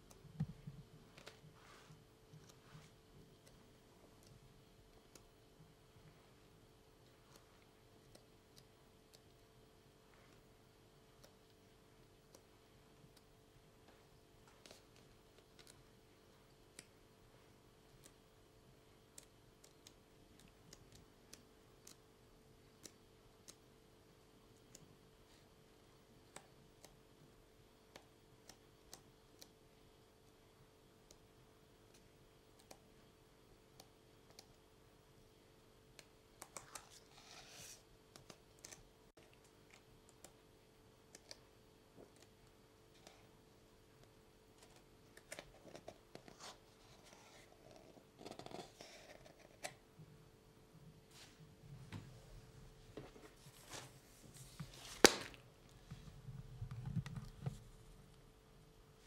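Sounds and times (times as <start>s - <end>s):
faint hum: 0.0s - 59.0s
book pages turning: 53.0s - 55.4s
paper rustling: 53.0s - 55.4s
book slapping shut: 54.8s - 55.4s.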